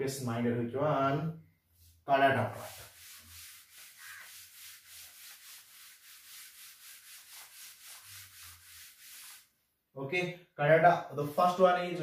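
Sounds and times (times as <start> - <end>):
duster rubbing on whiteboard: 1.8 - 9.5.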